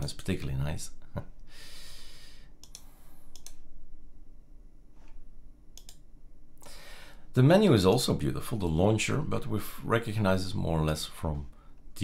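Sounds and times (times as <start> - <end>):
computer mouse clicking: 2.6 - 3.6, 5.8 - 6.0.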